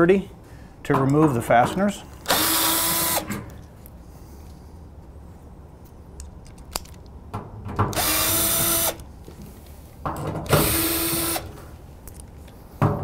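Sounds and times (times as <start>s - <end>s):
drill motor whine: 2.3s - 3.3s, 8.0s - 9.0s, 10.6s - 11.5s.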